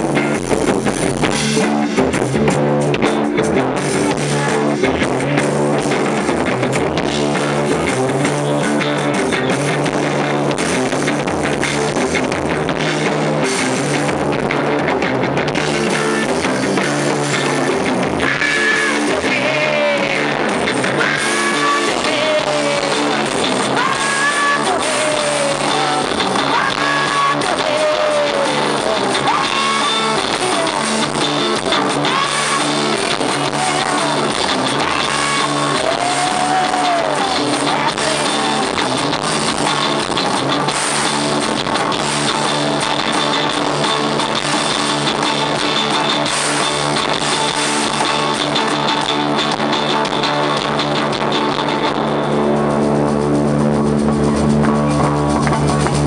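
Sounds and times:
distorted live rock band: 0.0s - 56.0s
woman singing: 21.0s - 31.0s, 31.7s - 38.8s.

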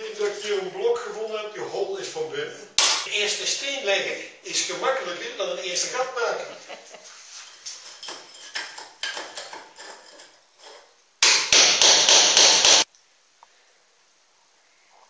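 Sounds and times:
hammer striking steel chisel: 11.2s - 12.9s.

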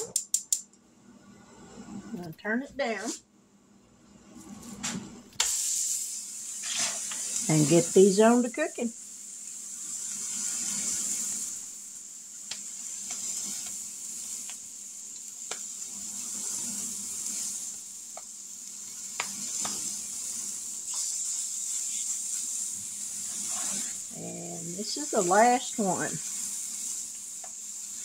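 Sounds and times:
patties sizzling in skillet: 4.2s - 28.0s.

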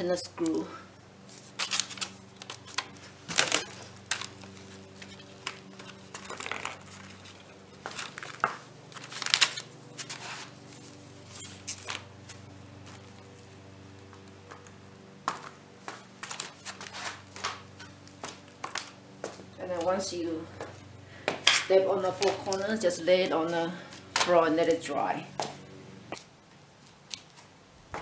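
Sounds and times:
faint steady hum: 0.0s - 28.0s
paper and cardboard crinkling underfoot: 1.2s - 14.8s, 15.9s - 20.1s.

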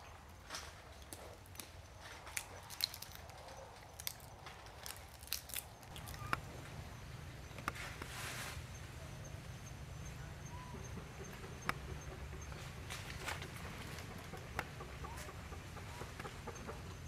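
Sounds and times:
monkeys cracking peanut shells: 1.0s - 6.4s
monkeys chewing: 1.0s - 8.1s.

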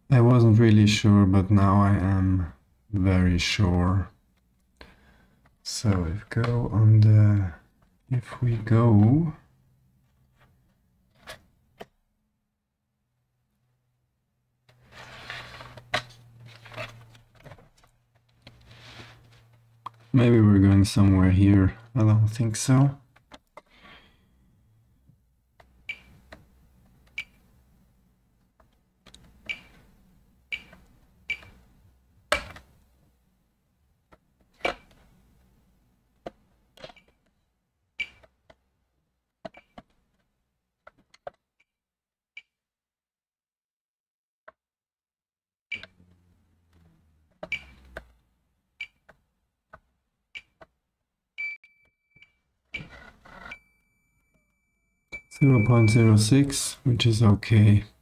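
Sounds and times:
steady high beep: 53.6s - 56.3s.

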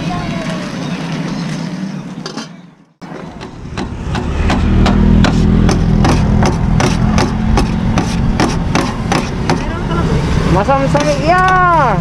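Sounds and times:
knives chopping on metal tray: 4.2s - 9.7s.

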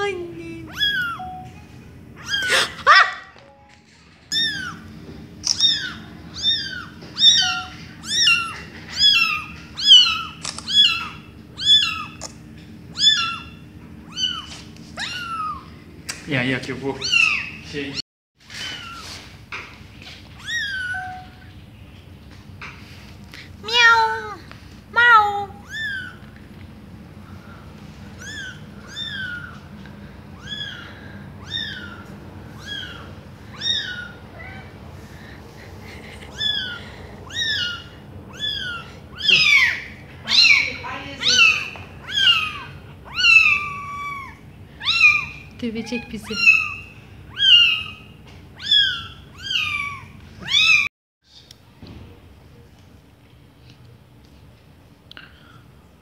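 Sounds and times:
kitten meowing: 0.0s - 1.4s, 2.2s - 3.0s, 4.3s - 4.8s, 5.4s - 12.3s, 12.9s - 15.7s, 17.0s - 17.6s, 20.4s - 21.4s, 23.6s - 24.4s, 25.0s - 26.2s, 28.2s - 29.6s, 30.4s - 34.7s, 36.3s - 45.4s, 46.0s - 50.9s.

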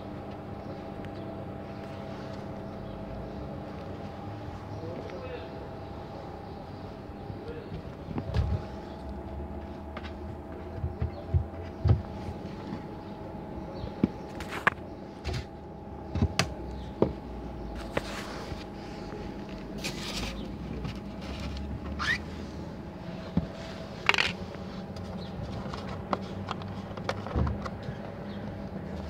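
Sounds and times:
steady low hum: 0.0s - 29.0s
handling knocks and rustles: 13.8s - 15.5s.

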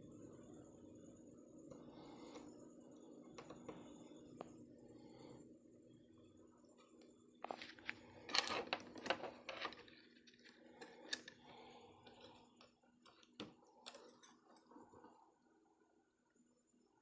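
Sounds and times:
faint steady hum: 0.0s - 17.0s
plastic parts clicking and rattling: 7.4s - 14.4s.

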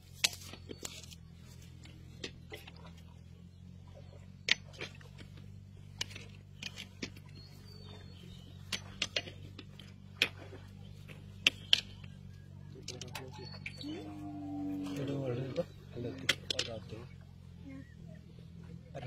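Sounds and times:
steady low hum: 0.0s - 19.0s
fishing net crackles and taps: 8.6s - 13.8s.

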